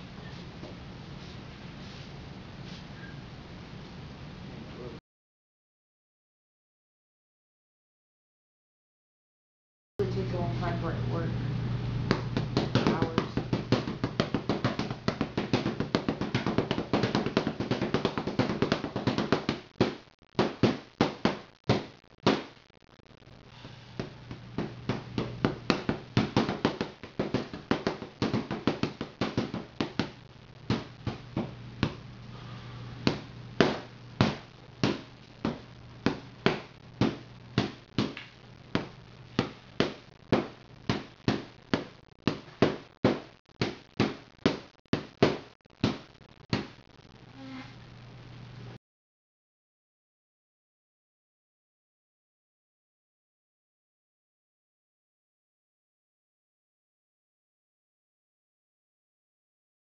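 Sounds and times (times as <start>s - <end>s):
punches on heavy punching bag: 12.1s - 22.4s, 24.6s - 30.1s.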